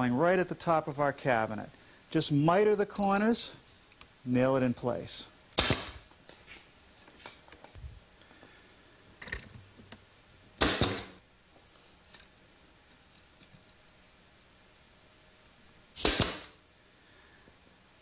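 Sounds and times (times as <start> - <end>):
nail gun shots: 5.6 - 6.0, 10.6 - 11.2, 16.0 - 16.6.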